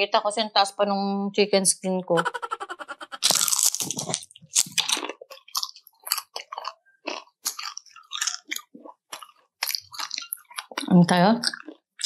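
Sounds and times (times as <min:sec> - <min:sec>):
person chewing crispy chicken: 0:03.0 - 0:12.0.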